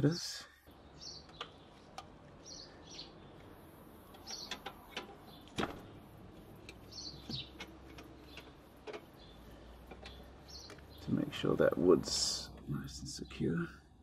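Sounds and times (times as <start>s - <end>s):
faint bird chirps: 0.0s - 4.6s, 6.8s - 11.5s.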